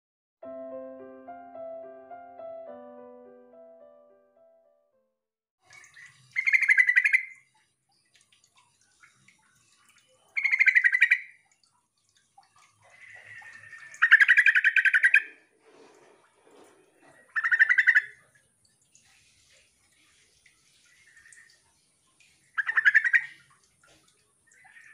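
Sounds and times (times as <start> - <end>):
bird chattering calls: 17.4 - 18.1.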